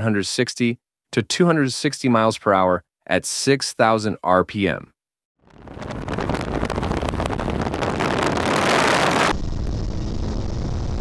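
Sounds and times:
wind noise on microphone: 5.4 - 11.0.

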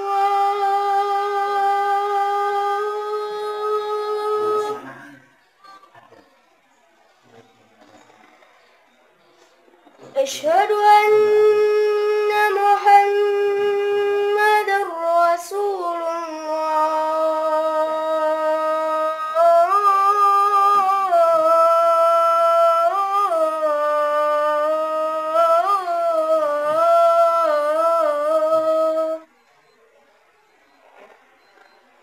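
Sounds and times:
boy chanting call to prayer: 0.0 - 5.3, 10.2 - 29.3.

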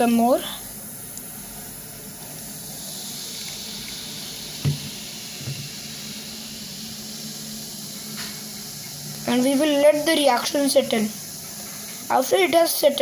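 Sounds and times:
fizzing hiss: 0.0 - 13.0
liquid pouring into bowl: 1.2 - 9.2
knock: 4.6 - 5.6.

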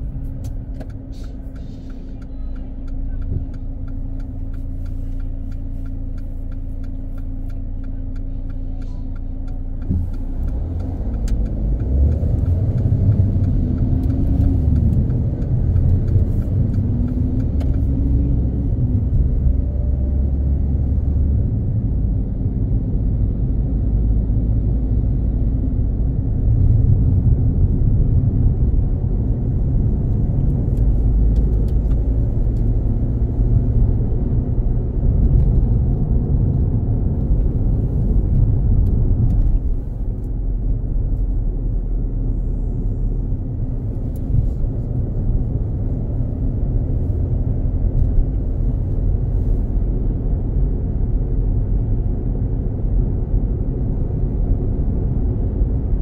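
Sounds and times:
car engine rumble: 0.0 - 56.0
car road noise: 0.0 - 56.0
light ticking: 0.3 - 19.6.

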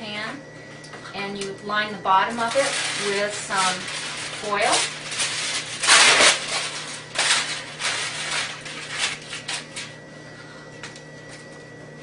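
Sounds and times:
aluminum foil crinkling: 2.2 - 10.0.

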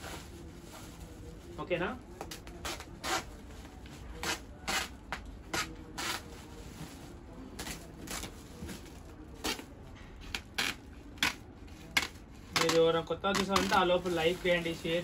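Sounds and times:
plastic sack rustling and scraping: 13.4 - 15.0.

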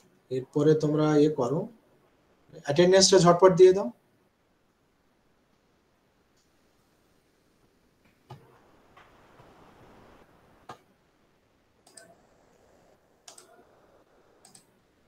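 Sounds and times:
low room noise: 0.0 - 15.0
computer mouse clicks: 11.8 - 12.6, 13.2 - 13.6, 14.4 - 14.8.

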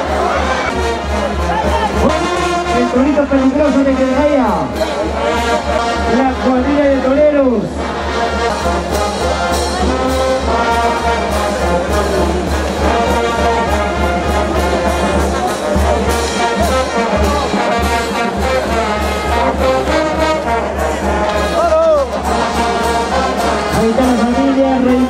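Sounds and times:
brass band playing: 0.0 - 25.0.

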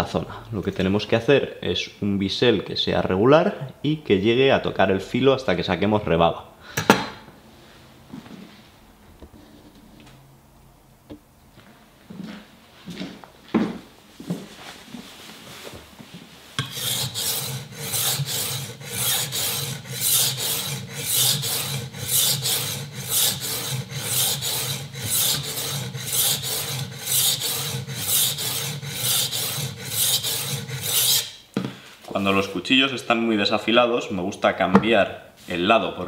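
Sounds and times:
knife scraping on sharpening plate: 16.6 - 31.4.

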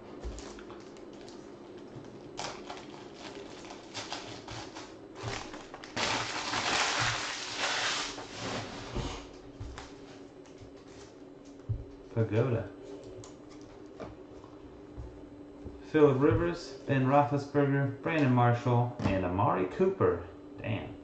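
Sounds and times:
foil wrapper crinkling and tearing: 0.3 - 8.3.

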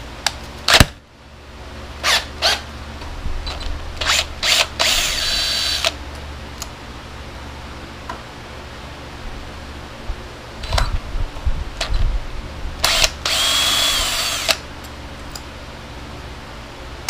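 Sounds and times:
cordless drill whirring: 2.0 - 2.6, 3.5 - 6.0, 12.8 - 14.6.

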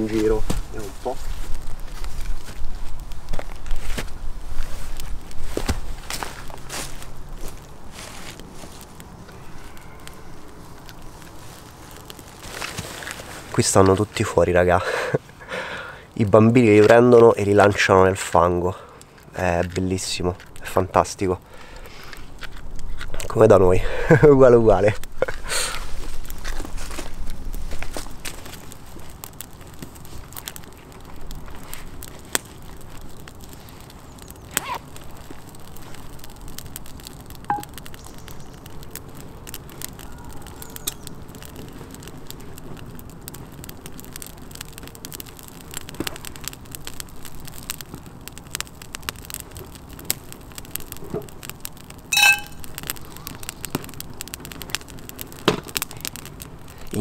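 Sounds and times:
campfire crackling and popping: 0.0 - 57.0
short pitched call: 52.2 - 52.6.

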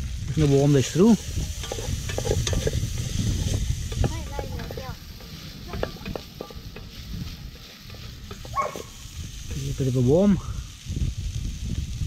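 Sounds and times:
pan sizzling: 0.0 - 12.0
wooden spatula scraping saucepan: 0.8 - 9.9.

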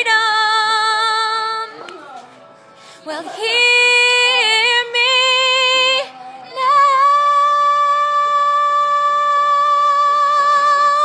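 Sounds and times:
singer breathing in: 2.7 - 3.1.

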